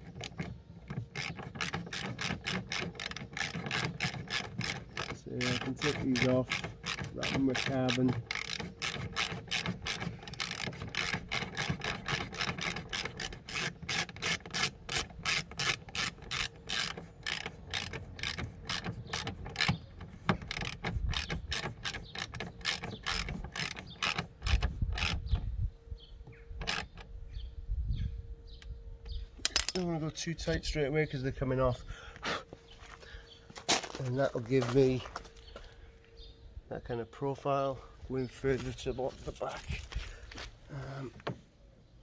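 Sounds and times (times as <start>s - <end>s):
socket ratchet clicking: 0.0s - 25.4s, 26.6s - 27.1s.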